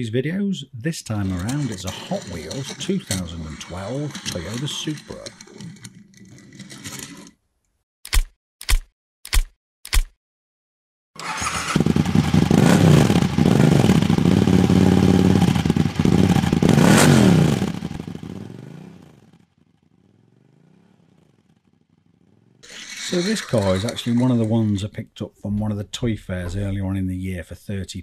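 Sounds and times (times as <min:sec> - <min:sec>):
engine revving hard: 0:11.2 - 0:18.0.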